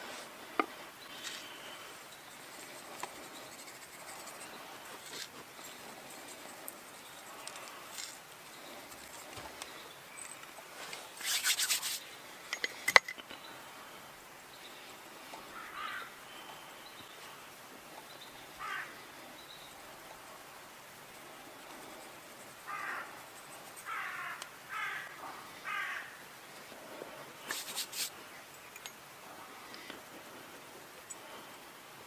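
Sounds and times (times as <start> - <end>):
crow cawing: 15.5 - 16.2, 18.6 - 19.0, 22.7 - 23.1, 23.8 - 26.2.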